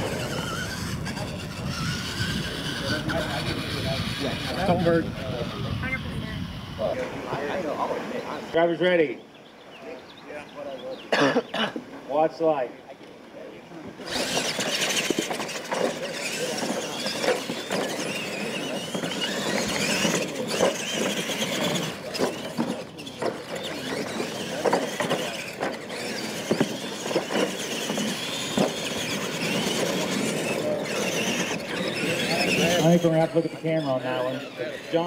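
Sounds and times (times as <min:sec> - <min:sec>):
electric motors whining: 0:00.0 - 0:08.6, 0:14.0 - 0:35.0
toy trucks knocking on ramps: 0:14.1 - 0:32.6.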